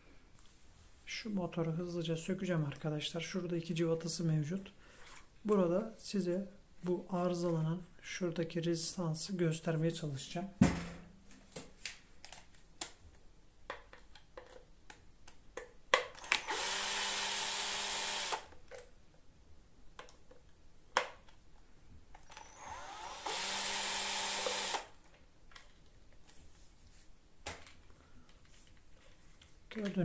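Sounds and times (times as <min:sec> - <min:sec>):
cordless drill whining: 0:16.2 - 0:18.5, 0:22.2 - 0:25.0.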